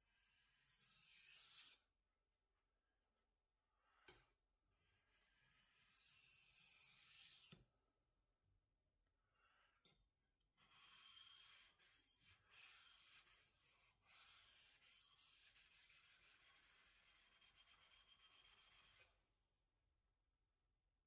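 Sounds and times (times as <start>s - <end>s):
knife scraping on whetstone: 0.6s - 1.8s, 5.5s - 7.6s, 10.7s - 19.2s.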